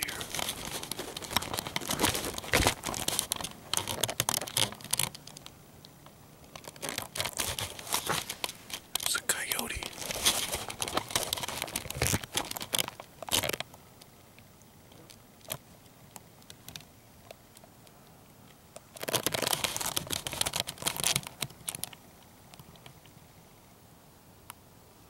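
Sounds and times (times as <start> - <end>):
crinkling handling noise: 0.0 - 13.8, 18.8 - 22.0.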